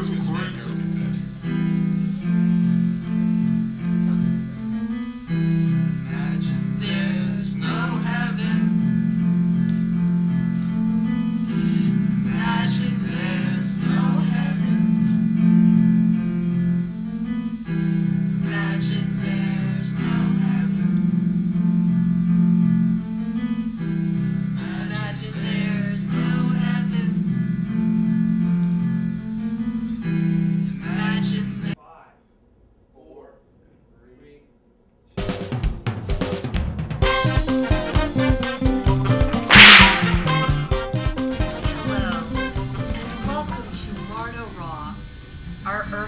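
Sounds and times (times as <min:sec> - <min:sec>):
guitar and keyboard chords: 0:08.1 - 0:24.7, 0:37.0 - 0:42.9.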